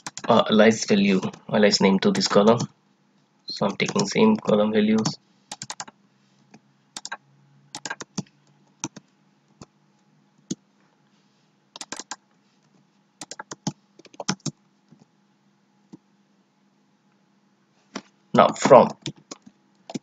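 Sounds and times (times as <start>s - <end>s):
keyboard typing: 0.0s - 0.4s, 3.7s - 6.0s, 7.0s - 9.7s, 11.8s - 12.2s, 13.2s - 14.6s, 18.6s - 20.0s
faint low hum: 0.0s - 20.0s.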